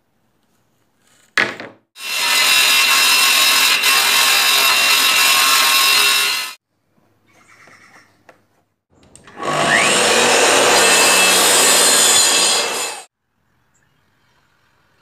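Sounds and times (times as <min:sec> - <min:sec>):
table saw cutting board: 0:02.0 - 0:06.6, 0:09.3 - 0:13.1.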